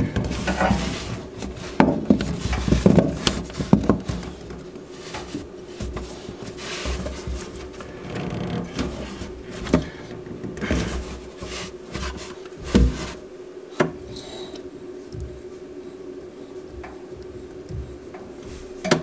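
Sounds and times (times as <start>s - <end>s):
plastic hose rubbing and rustling: 0.0s - 13.3s
faint steady hum: 0.0s - 19.0s.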